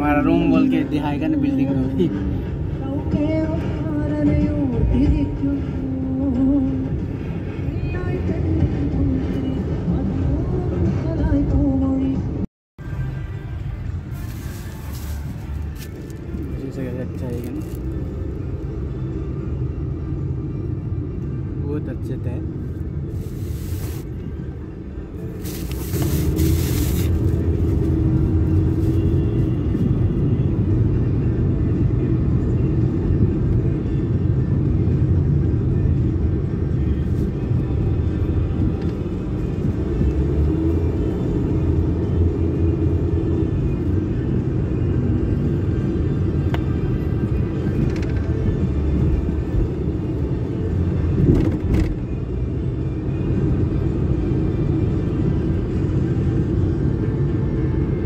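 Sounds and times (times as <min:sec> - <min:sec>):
music playing: 0:00.0 - 0:21.4
car rumbling while driving: 0:00.0 - 0:58.0.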